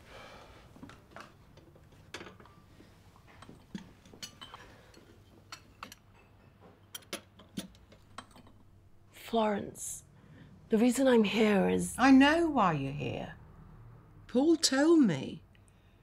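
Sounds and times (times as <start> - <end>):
teacups and saucers clinking: 1.2 - 8.7.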